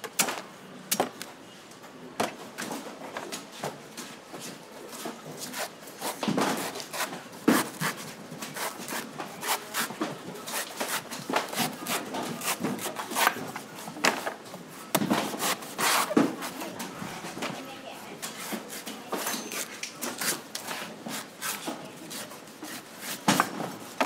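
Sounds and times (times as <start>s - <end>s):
knife slicing coconut husk: 5.5s - 13.4s, 15.3s - 16.6s, 21.1s - 23.5s.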